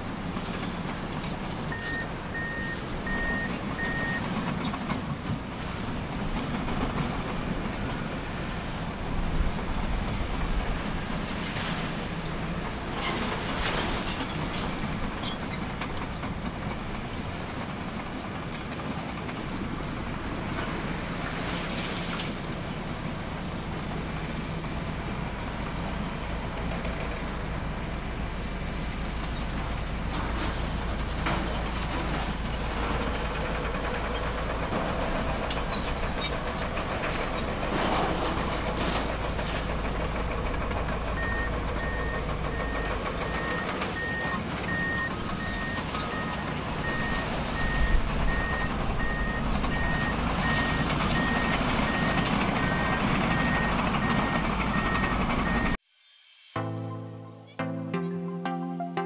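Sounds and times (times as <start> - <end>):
diesel engine running: 0.0 - 55.8
steel tracks clanking: 0.0 - 55.8
reversing alarm beeping: 1.7 - 4.3, 41.2 - 55.8.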